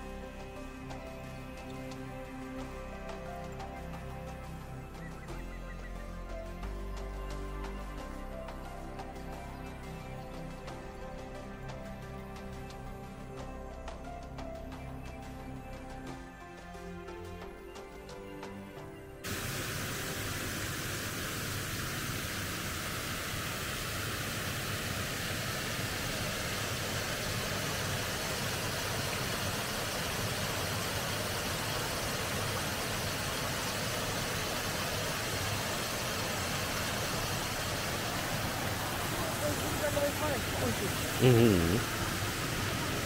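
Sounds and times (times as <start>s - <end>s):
background music: 0.0s - 22.1s, 24.2s - 43.0s
water rushing over weir: 19.3s - 43.0s.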